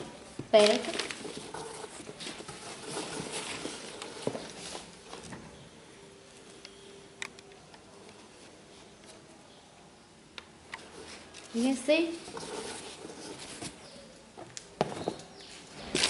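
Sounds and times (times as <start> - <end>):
cloth bags rustling: 0.0 - 5.3.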